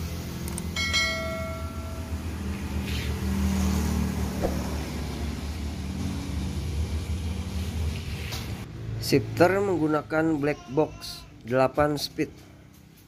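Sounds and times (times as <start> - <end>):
low hum: 0.0 - 3.5
bright chime: 0.8 - 2.4.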